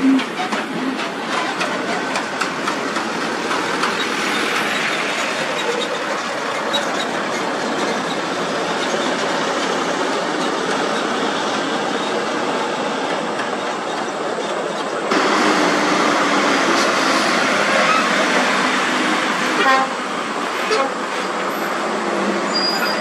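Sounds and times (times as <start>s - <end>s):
trailer rattling: 0.0s - 19.5s
heavy trucks passing: 15.1s - 23.0s.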